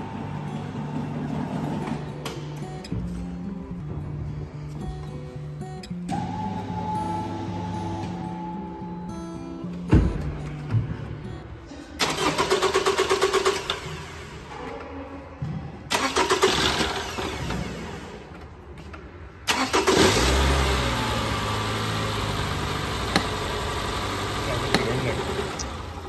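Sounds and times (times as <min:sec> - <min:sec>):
car starter cranking engine: 0:12.0 - 0:14.5, 0:15.9 - 0:18.1, 0:19.5 - 0:26.0
car engine idling: 0:19.5 - 0:26.0.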